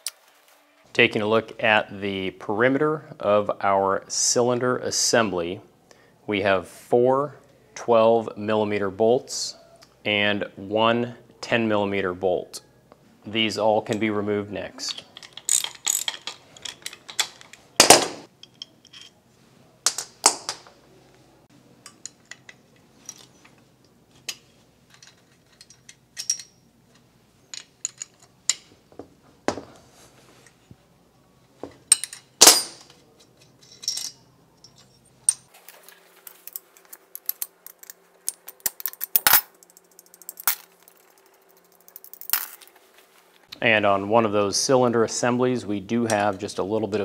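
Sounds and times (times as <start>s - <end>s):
metal clicks and clanks: 14.8s - 19.2s, 24.2s - 28.7s.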